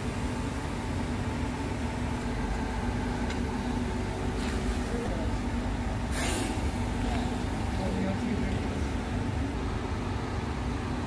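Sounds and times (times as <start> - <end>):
low machine hum: 0.0 - 11.0
short sharp hiss: 6.1 - 6.8.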